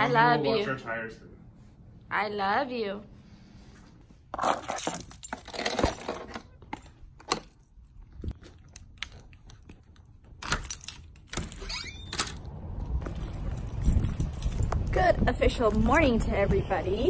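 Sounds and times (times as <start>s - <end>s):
wind rumble on microphone: 12.5s - 17.0s.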